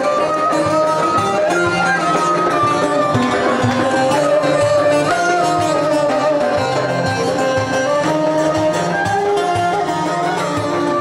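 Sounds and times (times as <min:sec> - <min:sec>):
folk string instruments melody: 0:00.0 - 0:11.0
hand drum beat: 0:00.0 - 0:11.0.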